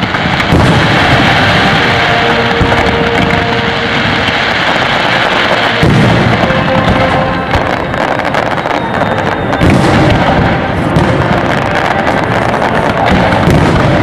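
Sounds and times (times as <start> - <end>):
low firework boom: 0.0 - 4.5, 5.8 - 8.4
fireworks bursting and crackling: 0.0 - 14.0.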